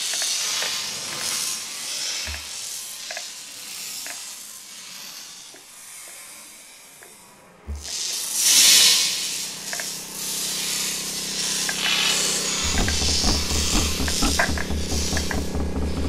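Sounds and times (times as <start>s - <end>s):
high electronic hiss: 7.7s - 16.0s
loud surging hiss: 8.3s - 16.0s
steady low drone: 11.6s - 16.0s
low thump: 12.6s - 16.0s.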